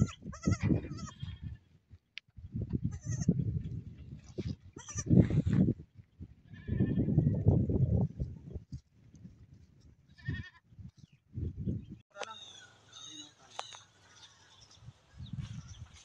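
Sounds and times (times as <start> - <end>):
goats bleating: 0.0 - 1.4.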